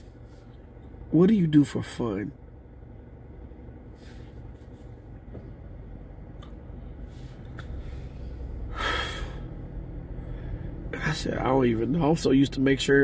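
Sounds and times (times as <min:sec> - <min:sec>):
low rumble inside a car: 0:00.0 - 0:13.0
man breathing out: 0:07.2 - 0:10.9.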